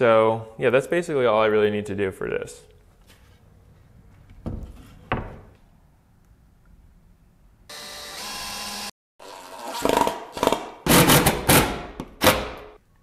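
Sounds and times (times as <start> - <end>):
cordless drill boring into wood: 7.7 - 9.8.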